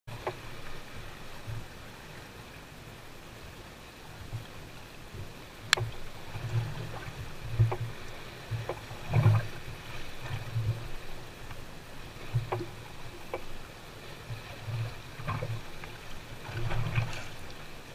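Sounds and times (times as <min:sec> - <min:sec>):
water wash: 0:00.1 - 0:17.9
waves slapping against boat hull: 0:00.1 - 0:17.9.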